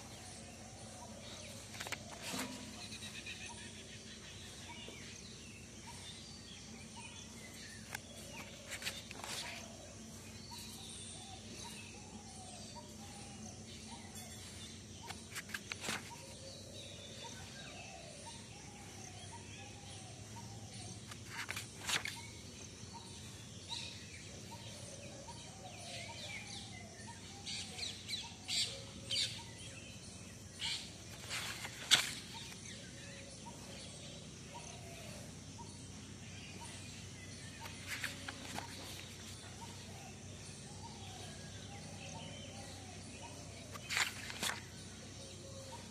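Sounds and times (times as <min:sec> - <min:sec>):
birds chirping: 0:00.0 - 0:45.9
notebook pages being turned: 0:01.4 - 0:03.1, 0:07.8 - 0:09.8, 0:15.0 - 0:16.4, 0:21.0 - 0:22.3, 0:31.0 - 0:32.6, 0:37.6 - 0:39.6, 0:43.7 - 0:44.7.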